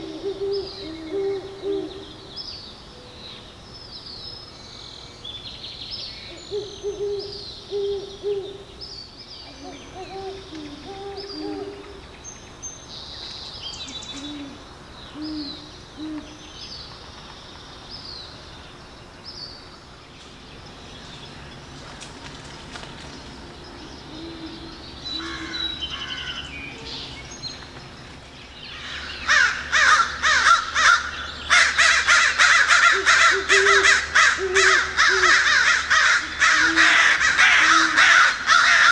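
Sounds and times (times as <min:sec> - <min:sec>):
owl hooting: 0:00.0 - 0:02.2, 0:06.3 - 0:08.7, 0:09.4 - 0:12.0, 0:13.9 - 0:16.4, 0:24.1 - 0:26.3, 0:29.3 - 0:38.9
harsh bird calls: 0:06.2 - 0:17.0, 0:23.6 - 0:38.9.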